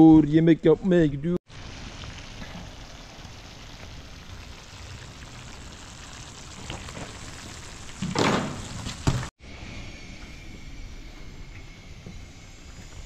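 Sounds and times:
food sizzling in a frying pan: 1.5 - 9.3.

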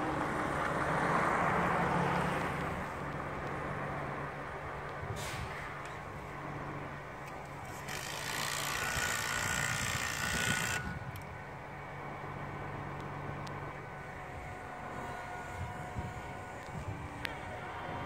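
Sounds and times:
truck engine running: 0.0 - 18.0.

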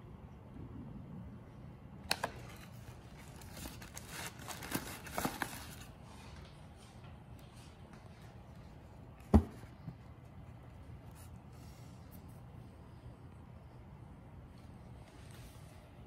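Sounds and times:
cardboard box crinkling and scraping: 3.2 - 5.9.

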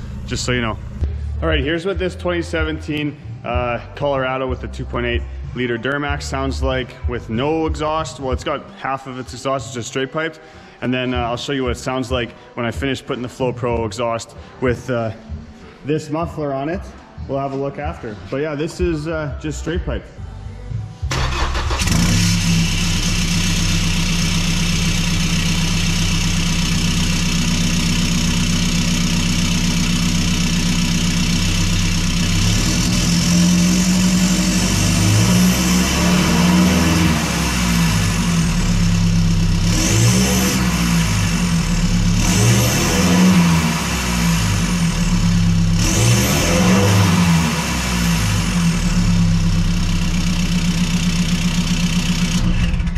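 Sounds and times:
diesel engine idling and revving: 0.0 - 5.6, 20.3 - 52.9.

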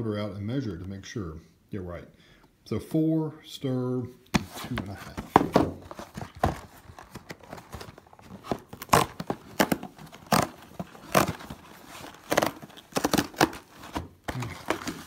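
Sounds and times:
cardboard carton tearing: 5.4 - 15.0.

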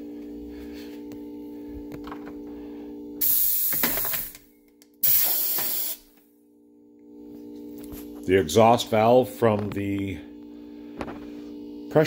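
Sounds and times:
compressed air hiss: 3.2 - 4.2, 5.0 - 6.0.

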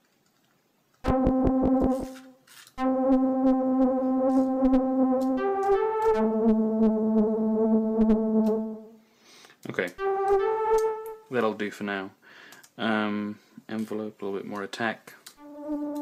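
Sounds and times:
synthesizer sustained notes: 1.1 - 9.0, 10.0 - 11.3, 15.4 - 16.0.

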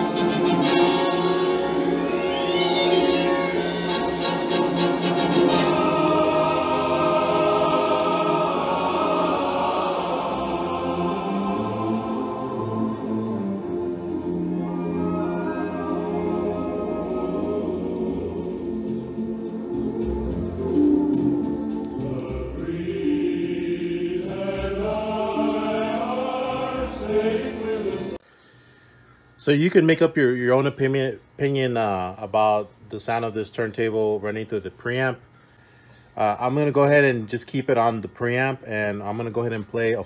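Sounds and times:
music with long held notes: 0.0 - 28.2.

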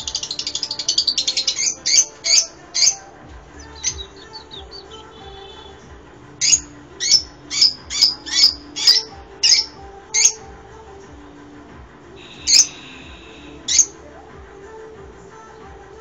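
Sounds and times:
lovebirds chirping: 0.0 - 10.5, 12.2 - 14.0.

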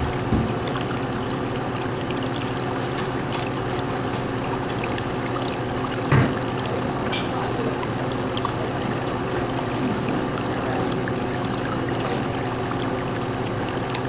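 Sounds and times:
aquarium water trickling: 0.0 - 14.0
low steady hum: 0.0 - 14.0.

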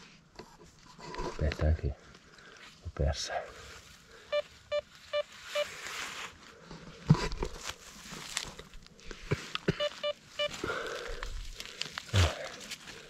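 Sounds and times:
rustling of dry leaves and soil: 0.1 - 13.0
metal detector beeps: 4.3 - 5.8, 9.7 - 10.6.

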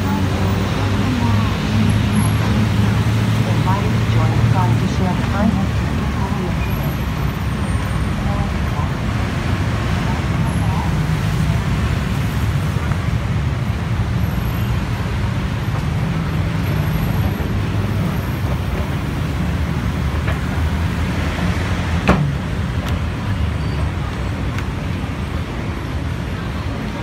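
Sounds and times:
city road traffic rumble: 0.0 - 27.0.

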